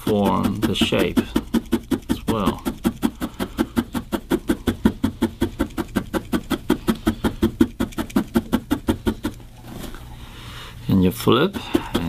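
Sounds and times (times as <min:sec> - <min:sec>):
felting needle poking: 0:00.0 - 0:09.4.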